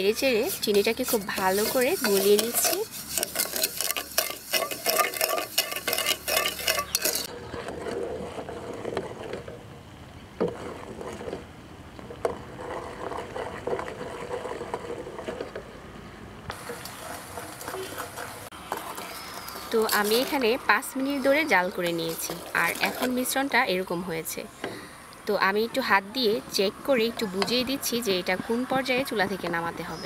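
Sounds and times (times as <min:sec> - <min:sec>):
spoon scraping sugar in metal pot: 0:00.0 - 0:08.8, 0:16.5 - 0:23.5
sugar syrup boiling: 0:00.0 - 0:15.6, 0:16.5 - 0:24.2.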